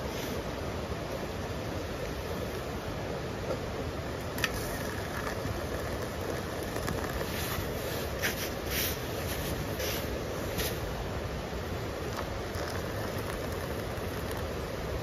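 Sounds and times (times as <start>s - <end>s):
water pouring into a metal cup: 4.5s - 7.4s, 12.0s - 15.0s.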